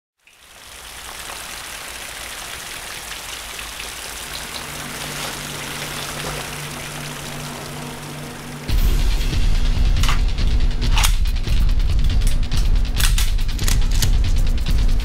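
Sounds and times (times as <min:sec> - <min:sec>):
rain-like hiss: 0:00.2 - 0:14.8
low music drone: 0:04.1 - 0:15.0.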